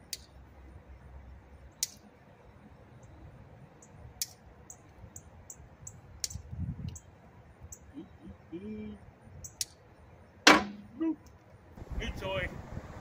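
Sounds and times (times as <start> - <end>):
sharp metal clank: 10.5 - 10.9.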